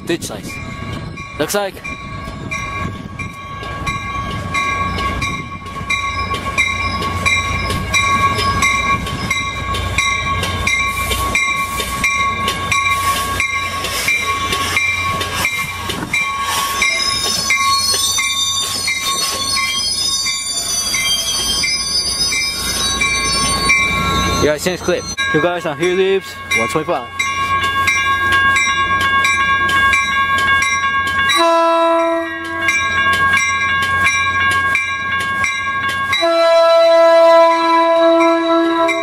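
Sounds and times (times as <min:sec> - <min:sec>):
train bell ringing: 0:00.0 - 0:39.0
train cars rumbling: 0:00.0 - 0:39.0
wheels and brakes squealing: 0:05.9 - 0:25.2.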